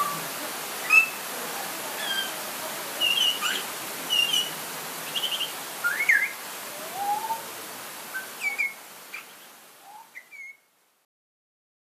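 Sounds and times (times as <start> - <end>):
light rain hiss: 0.0 - 11.1
bird singing fluting whistles: 3.0 - 4.5, 5.1 - 7.4, 8.2 - 8.8, 9.8 - 10.6.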